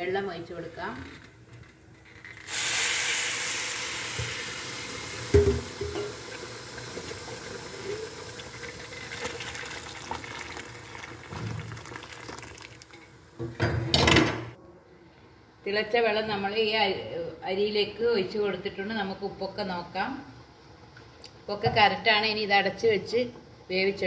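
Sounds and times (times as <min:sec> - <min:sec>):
water pouring into a pot: 0:02.5 - 0:13.1
knock on pot: 0:05.3 - 0:06.2.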